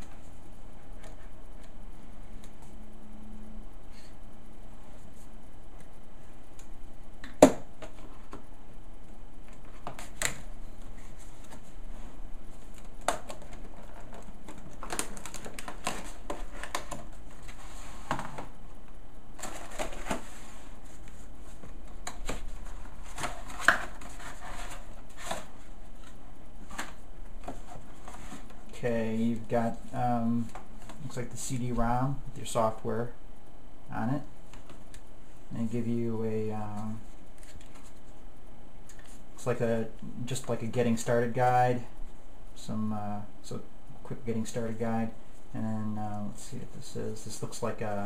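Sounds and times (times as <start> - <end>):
packaging rustling and crinkling: 12.5 - 18.5.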